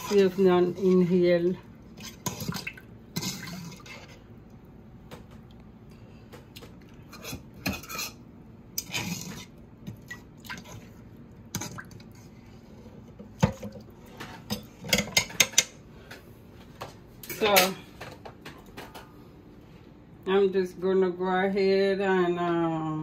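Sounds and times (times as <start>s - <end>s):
utensils clinking against dishes: 17.2s - 17.8s.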